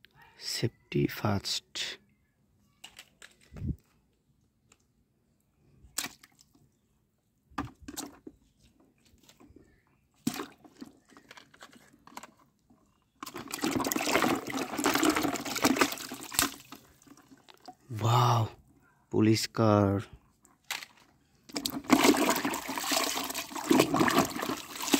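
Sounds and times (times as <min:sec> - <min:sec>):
toy cars clicking on stone: 0:02.8 - 0:03.5.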